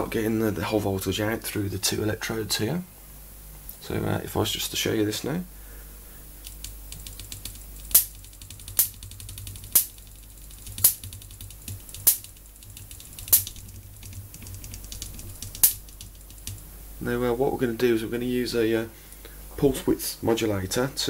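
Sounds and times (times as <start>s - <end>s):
electric sparks cracking: 6.4s - 16.7s
faint crackling ticks: 6.4s - 16.7s.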